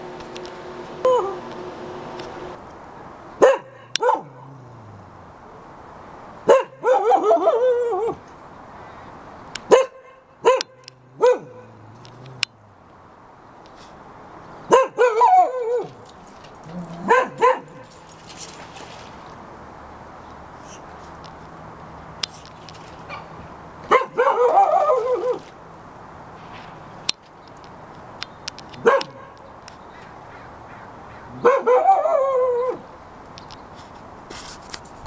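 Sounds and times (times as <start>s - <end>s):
dog barking and yelping: 1.0s - 1.5s, 3.4s - 4.7s, 6.4s - 8.2s, 9.7s - 12.6s, 14.7s - 18.7s, 23.0s - 25.5s, 28.8s - 29.5s, 31.2s - 32.9s.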